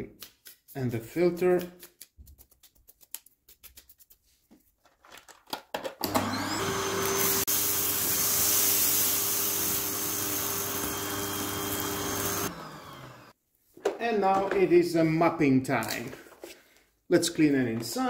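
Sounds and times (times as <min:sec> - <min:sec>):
vacuum cleaner motor whining: 0:06.0 - 0:13.3
brush scratching dust filter: 0:06.2 - 0:13.3.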